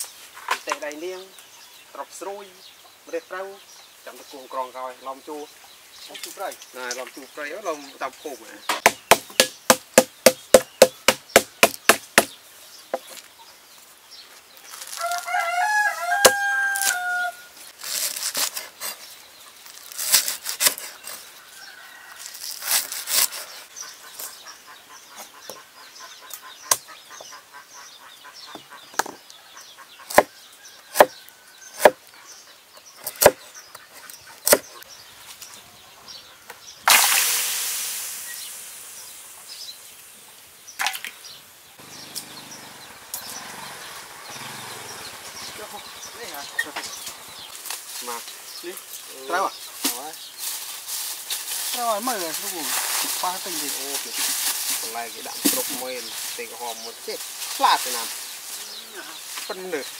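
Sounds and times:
knife chopping on wooden board: 8.7s - 12.3s, 30.1s - 30.3s, 33.1s - 33.4s, 34.4s - 34.6s
rooster crowing: 15.0s - 17.6s, 21.4s - 22.6s.

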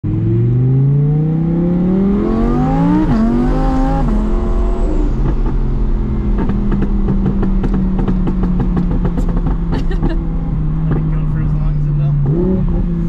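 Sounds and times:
car engine accelerating: 0.0s - 13.0s.

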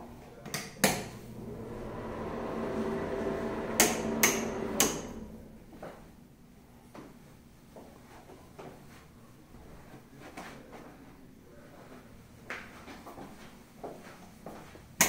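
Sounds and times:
steady hum with held tones: 0.9s - 7.0s.

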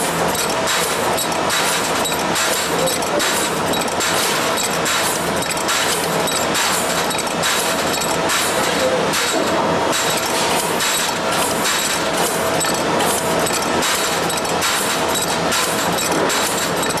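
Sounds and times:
tube cutter machine running: 0.0s - 17.0s.

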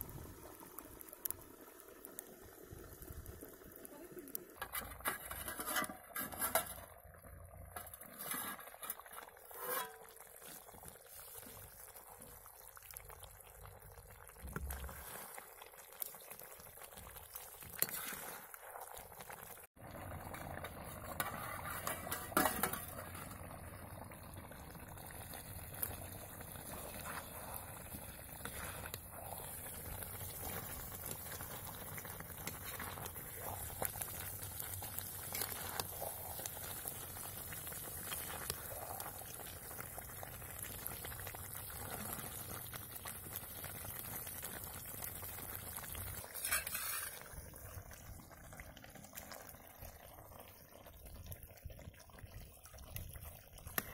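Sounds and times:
curry bubbling: 0.0s - 53.9s
scraping and ladling: 4.6s - 7.0s, 7.7s - 11.6s, 14.6s - 15.6s, 17.6s - 19.0s, 20.4s - 23.4s, 25.8s - 36.5s, 46.2s - 47.4s
metal spoon clanking on pan: 46.4s - 47.2s.

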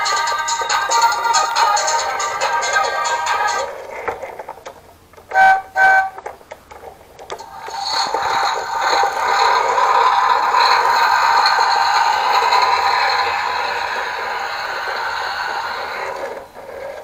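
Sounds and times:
recorded engine sound: 0.0s - 17.0s
toy electronic horn toots: 5.3s - 6.3s.

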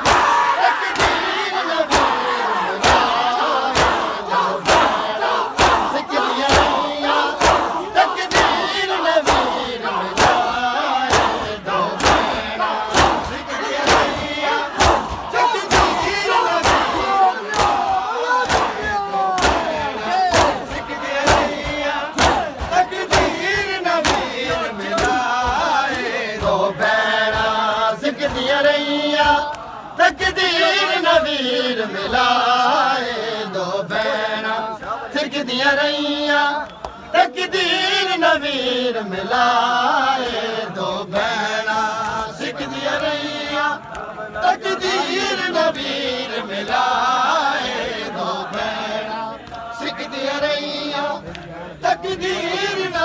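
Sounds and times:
men chanting a lament: 0.0s - 53.0s
hands slapping chests: 1.0s - 1.3s, 1.9s - 2.2s, 2.8s - 26.5s, 42.0s - 42.4s.

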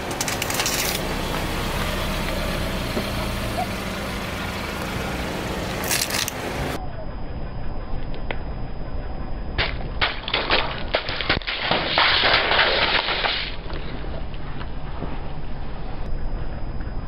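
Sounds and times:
tyre crushing tubes crackle: 0.0s - 1.0s, 5.8s - 6.4s, 10.0s - 14.0s
plastic tubes bursting: 9.6s - 13.7s.

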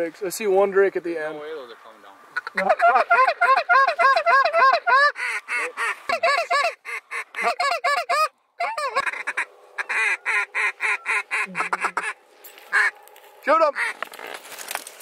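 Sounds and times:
duck calls quacking: 2.3s - 13.0s, 13.6s - 14.3s.

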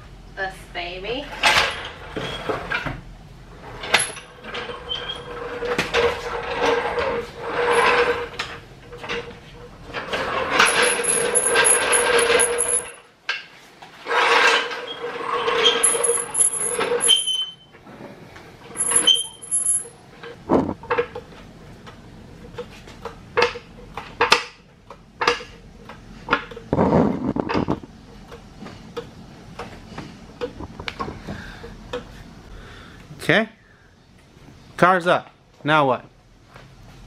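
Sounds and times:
floor jack rattling on concrete: 9.9s - 13.0s.

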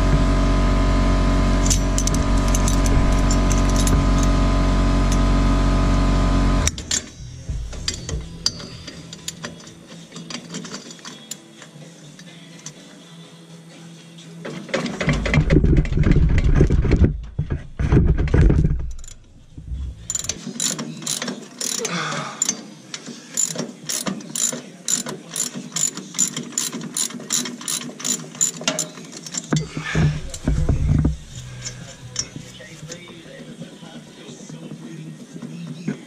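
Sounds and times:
ratchet wrench clicking: 1.6s - 4.3s, 6.7s - 9.7s, 20.0s - 22.6s, 23.4s - 29.6s
heavy low-pitched knocking: 7.2s - 8.5s, 16.7s - 20.1s.

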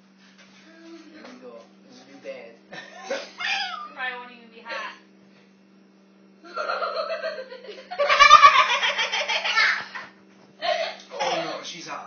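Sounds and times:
people laughing: 6.4s - 11.6s.

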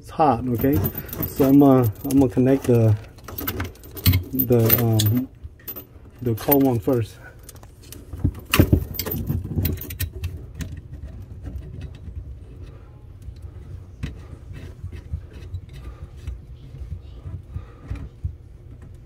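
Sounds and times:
metallic clicks and rattles: 0.5s - 12.7s.

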